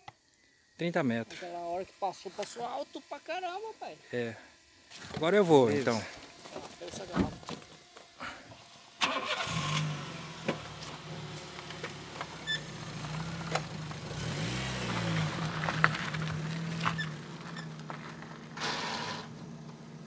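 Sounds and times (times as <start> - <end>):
car engine starting and running: 7.1 - 20.0.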